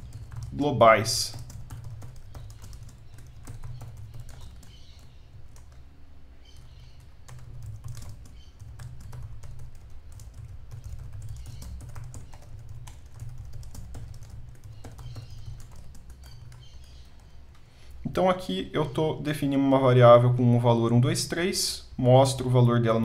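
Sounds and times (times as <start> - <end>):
keyboard typing clicks: 1.3 - 5.8, 6.5 - 17.4.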